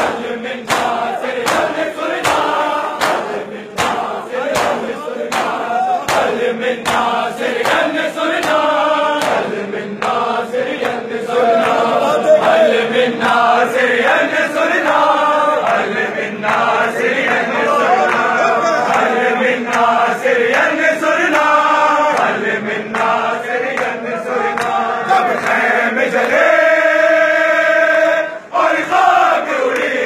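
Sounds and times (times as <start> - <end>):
chest-beating slaps: 0.0 - 11.8
crowd of men chanting: 0.0 - 30.0.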